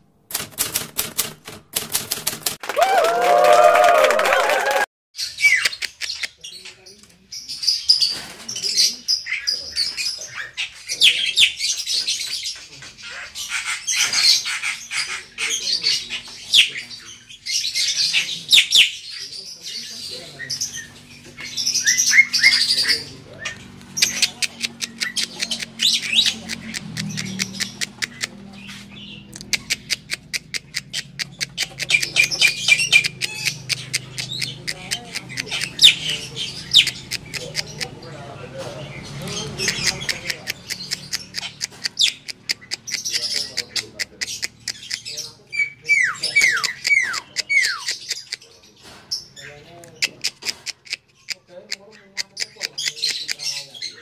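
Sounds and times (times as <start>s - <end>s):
rapid bird clicks: 0.3s - 2.6s, 5.6s - 6.4s, 23.8s - 28.4s, 29.3s - 36.0s, 39.6s - 45.1s, 49.9s - 53.5s
starlings calling: 5.2s - 54.0s.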